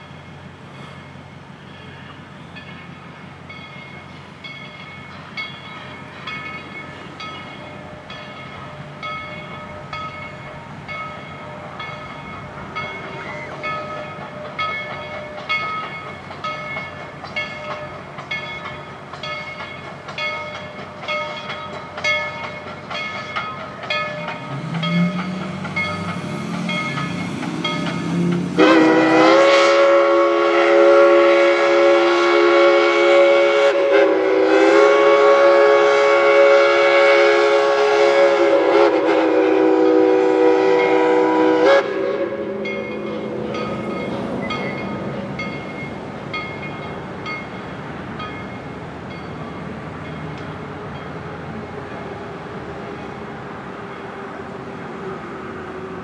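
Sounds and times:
locomotive bell ringing: 0:00.0 - 0:31.2, 0:42.2 - 0:52.1
steam locomotive running: 0:00.0 - 0:56.0
steam whistle blast: 0:28.5 - 0:43.4.

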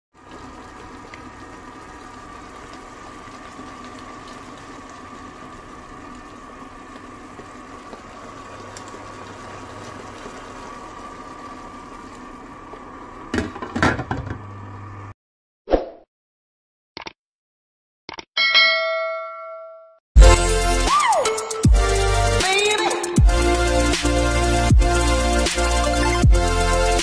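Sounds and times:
food simmering in sauce: 0:00.2 - 0:13.3.

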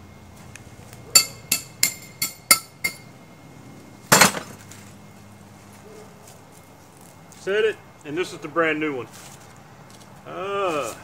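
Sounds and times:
hammer striking steel stake: 0:01.2 - 0:03.1
metal clatter: 0:04.1 - 0:04.6.

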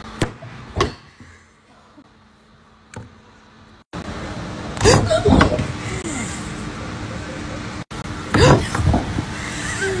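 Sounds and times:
woman crying out: 0:09.5 - 0:10.0.

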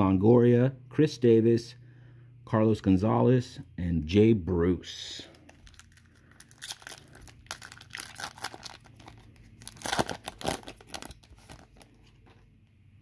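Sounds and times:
foil wrapper tearing and crinkling: 0:05.5 - 0:12.0.

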